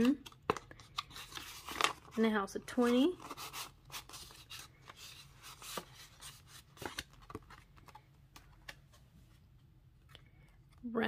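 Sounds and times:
banknotes rustling into plastic envelope: 0.0s - 8.9s.

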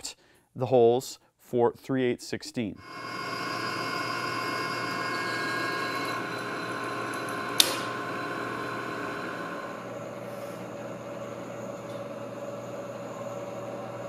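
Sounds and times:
milling machine spindle whine: 2.8s - 14.0s
sharp click: 7.6s - 7.9s.

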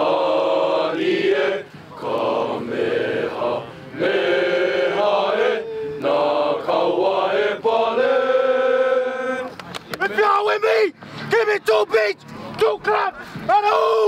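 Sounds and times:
young men chanting in unison: 0.0s - 9.5s.

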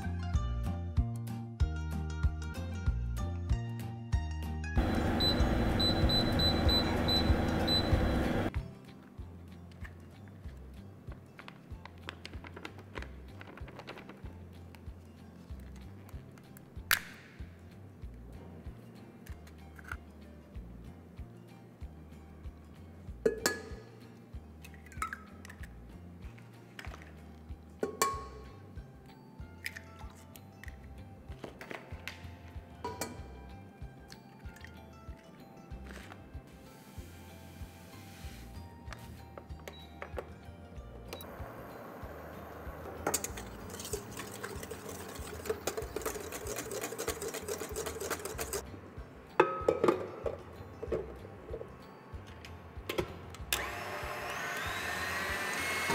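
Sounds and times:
background music: 0.0s - 55.9s
whisk clicking in metal bowl: 43.3s - 48.6s.

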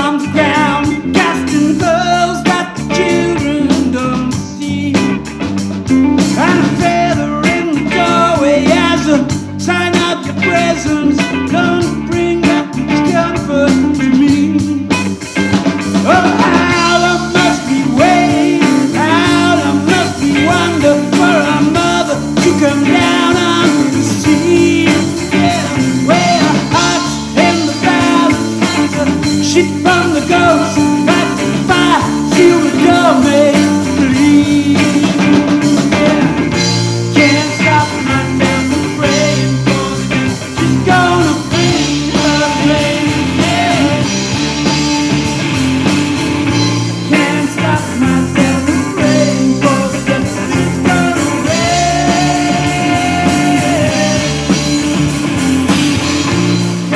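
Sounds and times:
live rock band playing: 0.0s - 56.9s.

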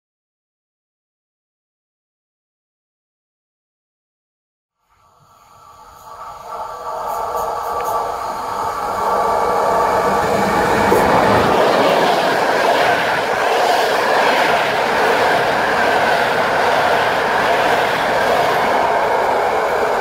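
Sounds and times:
train passing at speed: 4.8s - 20.0s
wheels rushing on rail: 4.9s - 20.0s.

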